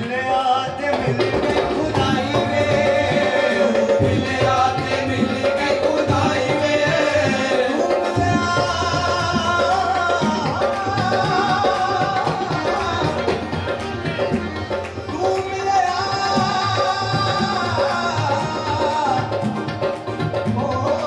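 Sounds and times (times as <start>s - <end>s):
harmonium: 0.0s - 21.0s
tabla rhythm: 0.0s - 21.0s.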